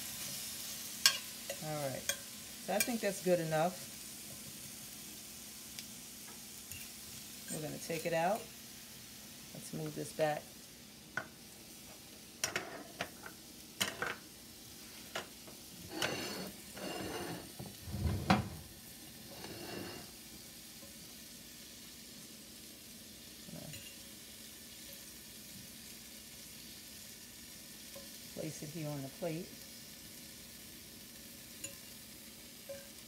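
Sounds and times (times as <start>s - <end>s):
vegetables sizzling in a skillet: 0.0s - 33.0s
utensils and dishes clinking: 12.4s - 14.2s, 15.9s - 17.6s.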